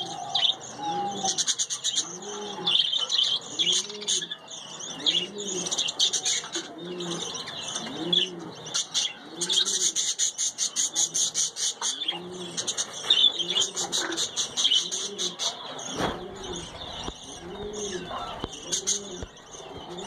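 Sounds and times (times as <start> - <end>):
low cooing: 0.0 - 2.8, 16.2 - 20.0
budgerigars chattering and warbling: 0.0 - 20.0.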